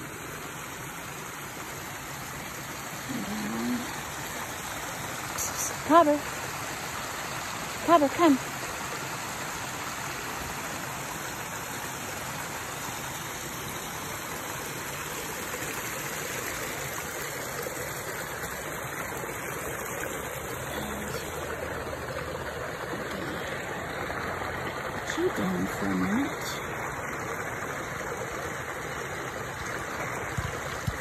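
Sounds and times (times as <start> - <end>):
creek running over rocks: 0.0 - 31.0.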